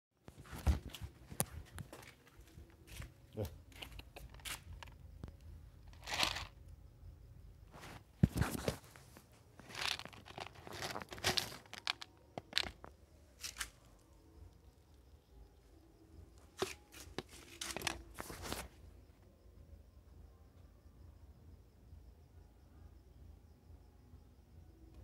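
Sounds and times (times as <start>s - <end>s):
handling noises: 0.3s - 6.6s, 7.7s - 14.0s, 16.4s - 18.8s.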